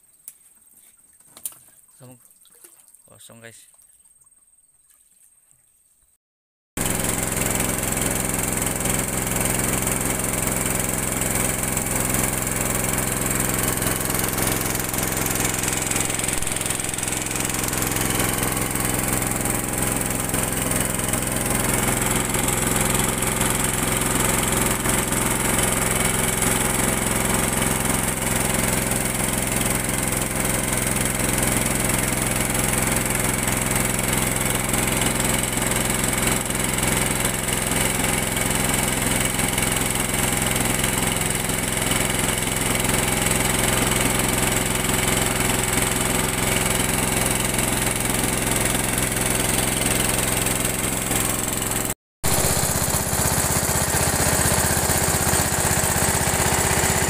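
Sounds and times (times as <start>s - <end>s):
boat engine droning: 10.8s - 25.5s.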